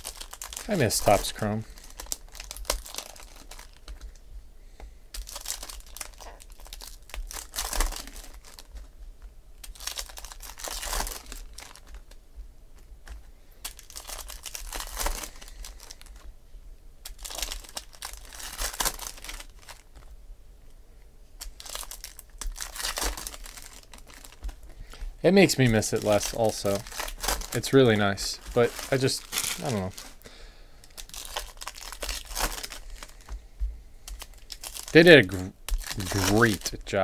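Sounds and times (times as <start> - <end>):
cards shuffling and rustling: 0.0 - 4.1, 21.4 - 30.2, 30.9 - 33.4, 34.0 - 36.9
foil wrapper tearing and crinkling: 0.0 - 4.1, 5.1 - 8.8, 9.6 - 12.2, 13.6 - 16.2, 17.0 - 20.1, 21.4 - 30.2, 30.8 - 33.3, 34.0 - 36.9.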